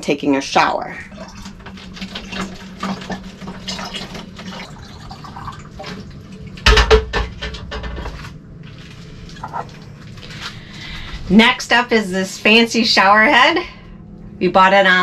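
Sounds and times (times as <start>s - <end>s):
hot water pouring into bottle: 1.1s - 6.6s.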